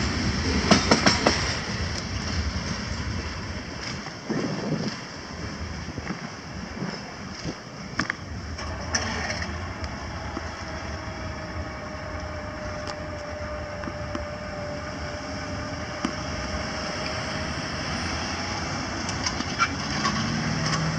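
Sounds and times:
cars crossing tracks: 0:00.0 - 0:20.9
freight train rumbling: 0:00.0 - 0:20.9.

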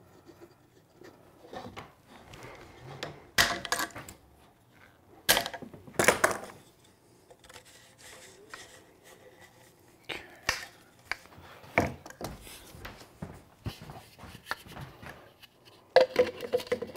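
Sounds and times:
soft rubbing and scraping: 0:06.6 - 0:10.0.

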